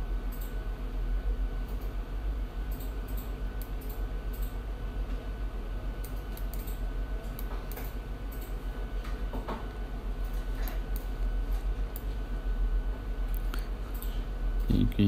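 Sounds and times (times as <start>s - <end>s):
low electrical hum: 0.0s - 15.0s
computer mouse clicks: 2.7s - 4.6s, 6.0s - 8.6s, 10.2s - 11.3s.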